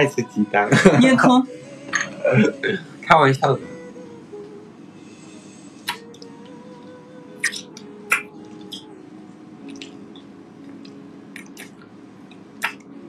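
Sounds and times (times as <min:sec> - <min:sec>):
wet kissing lip smacks: 0:05.8 - 0:06.0, 0:07.4 - 0:08.9, 0:09.7 - 0:10.0, 0:10.8 - 0:11.8, 0:12.6 - 0:12.9.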